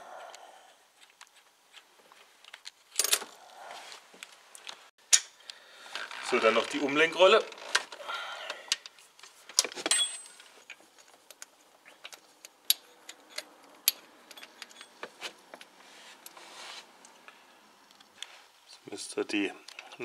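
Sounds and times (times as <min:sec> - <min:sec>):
light metallic clicks and clinks: 0:09.9 - 0:15.7.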